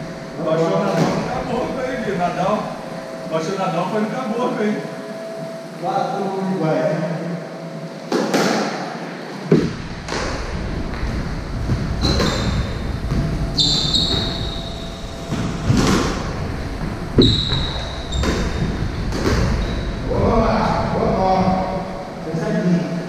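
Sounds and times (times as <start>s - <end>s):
squash ball echoing bangs: 11.7s - 20.1s
shoes squeaking on wooden floor: 12.0s - 20.1s.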